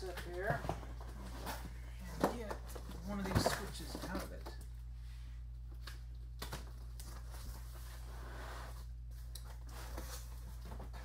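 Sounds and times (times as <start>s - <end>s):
steady low hum: 0.0s - 11.0s
cardboard rustling and scraping: 7.0s - 11.0s.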